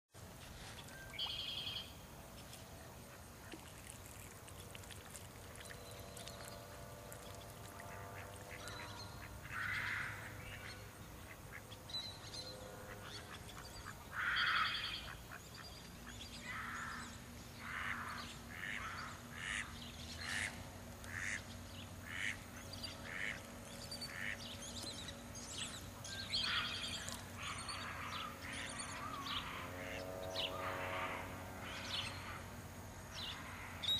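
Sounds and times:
ducks quacking: 0:07.2 - 0:11.7, 0:17.7 - 0:21.4, 0:22.0 - 0:22.4, 0:23.0 - 0:23.4.

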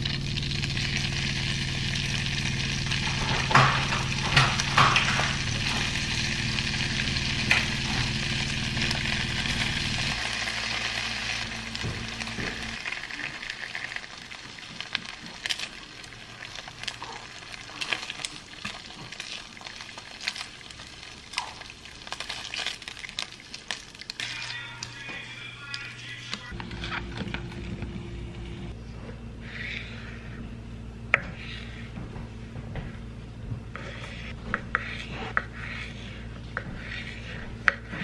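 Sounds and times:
low hum: 0:00.0 - 0:14.3, 0:24.0 - 0:38.0
bacon sizzling and popping: 0:00.0 - 0:24.9.

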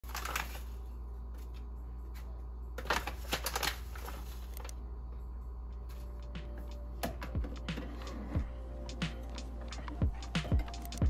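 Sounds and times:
bag rustling and crinkling: 0:00.0 - 0:00.8.

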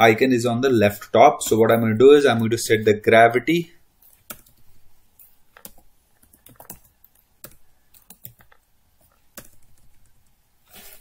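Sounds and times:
typing on computer keyboard: 0:04.1 - 0:04.6, 0:05.6 - 0:08.6, 0:09.3 - 0:10.2.

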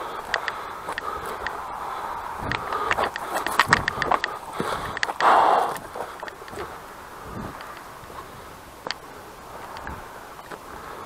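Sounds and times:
footsteps on stony ground: 0:00.0 - 0:11.0
wind hiss on microphone: 0:00.0 - 0:11.0
sharp tick: 0:00.2 - 0:01.6, 0:02.5 - 0:06.7.

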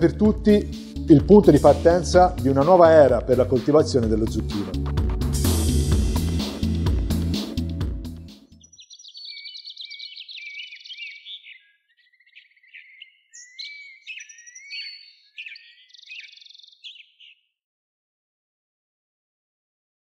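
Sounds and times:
songbird chirping and trilling: 0:08.3 - 0:17.6.

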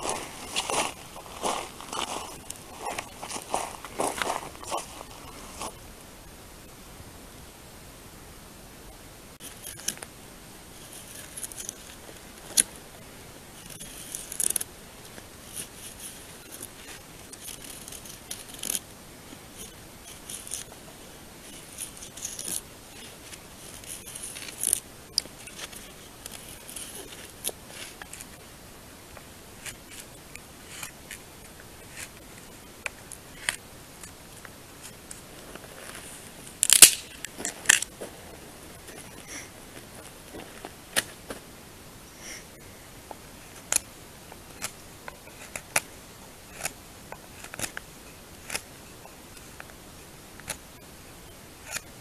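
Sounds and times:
knife scraping wooden stick: 0:46.5 - 0:47.8, 0:51.6 - 0:52.0.

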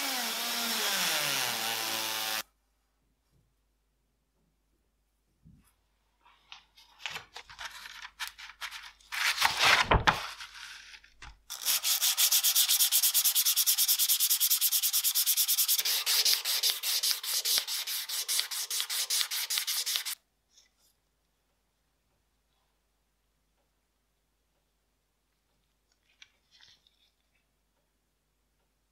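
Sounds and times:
sandpaper rubbing on metal: 0:11.5 - 0:20.2.

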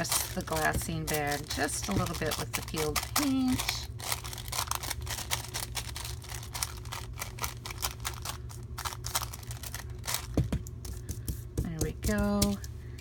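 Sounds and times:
tool tapping on paper bag: 0:00.0 - 0:03.3, 0:10.2 - 0:12.6.

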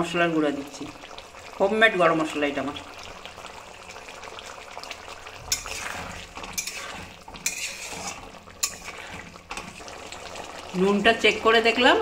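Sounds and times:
curry sizzling: 0:00.0 - 0:12.0
spatula scraping a pan: 0:05.3 - 0:09.9.

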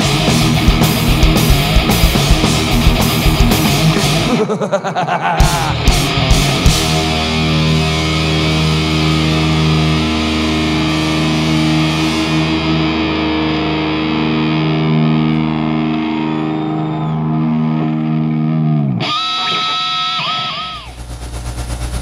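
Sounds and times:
distorted guitar chord ringing: 0:00.0 - 0:04.6, 0:05.5 - 0:22.0.

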